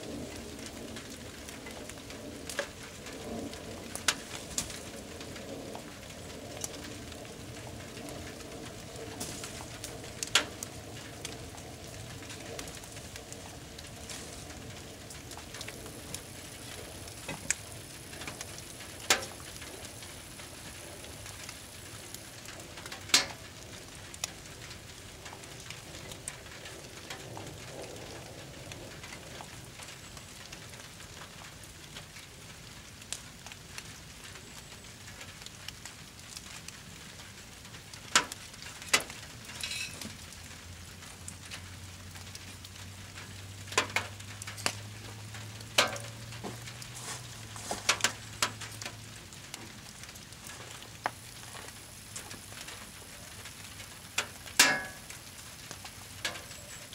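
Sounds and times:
fire crackling: 0.0 - 56.9
rain hissing: 0.0 - 56.9
sharp pops of fire: 0.2 - 28.0, 37.7 - 40.4, 43.1 - 44.8, 45.6 - 56.9.

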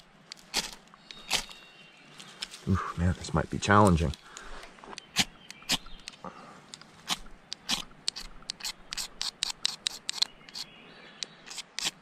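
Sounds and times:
ferro rod scraping: 6.8 - 10.7, 11.4 - 12.0.

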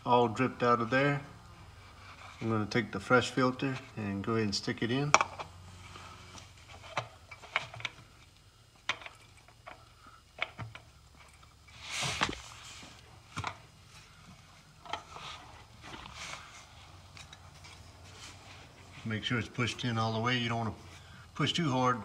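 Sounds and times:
rustle or scrape: 11.7 - 13.0, 14.9 - 19.2.

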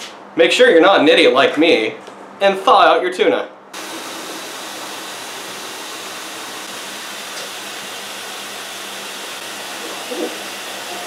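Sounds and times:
tap water running into sink: 3.8 - 11.0.

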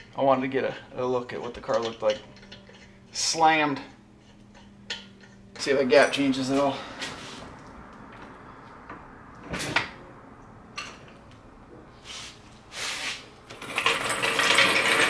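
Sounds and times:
jack scraping: 12.0 - 15.0
jack rattling across concrete: 13.5 - 15.0.

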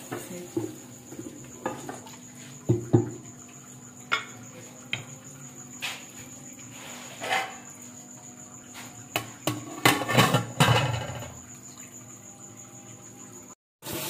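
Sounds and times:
wooden spatula scraping metal pot: 6.7 - 7.7.

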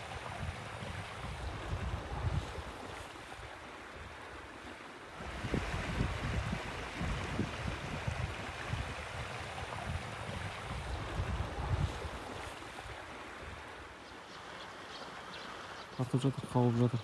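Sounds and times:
wind buffeting microphone: 0.0 - 4.4, 5.2 - 14.0.

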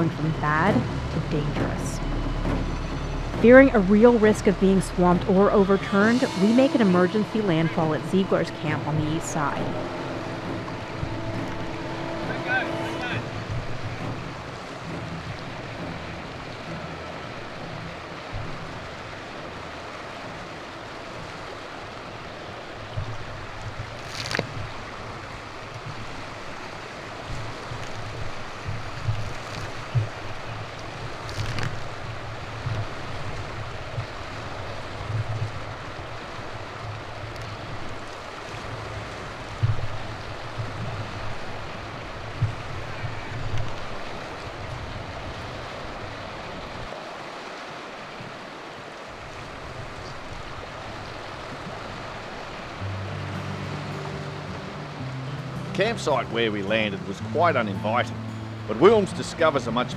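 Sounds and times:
wind buffeting microphone: 0.0 - 53.1
waves breaking on rocky shore: 0.0 - 58.0
sharp knocks: 0.6 - 5.2.

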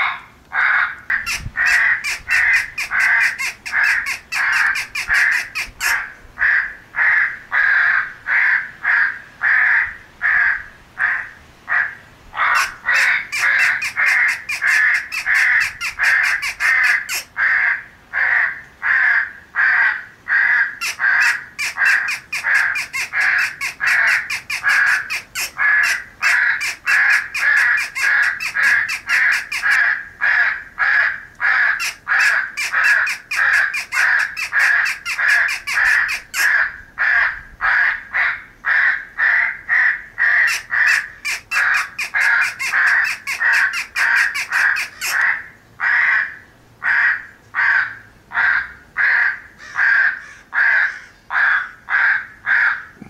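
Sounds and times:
crows cawing: 0.0 - 53.0.

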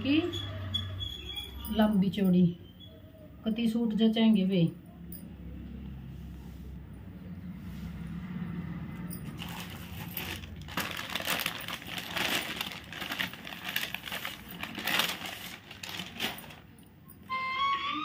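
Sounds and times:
metal bangles clinking: 8.9 - 17.3
cloth rustling and crackling: 9.2 - 16.8.

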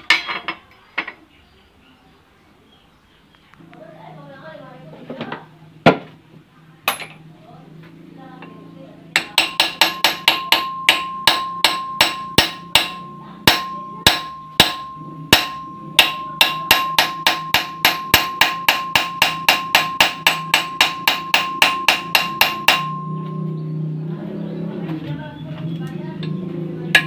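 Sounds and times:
hammer striking steel: 9.1 - 23.5, 26.2 - 27.0.

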